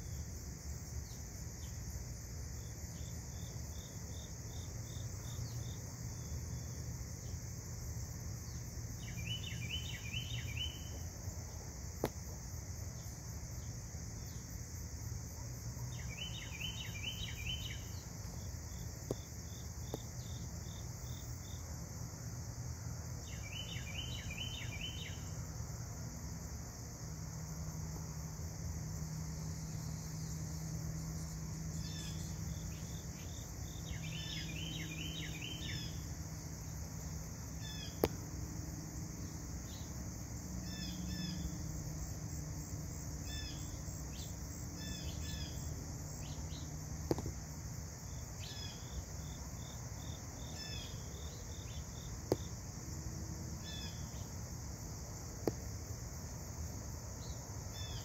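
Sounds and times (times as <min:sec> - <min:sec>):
insects droning: 0:00.0 - 0:58.0.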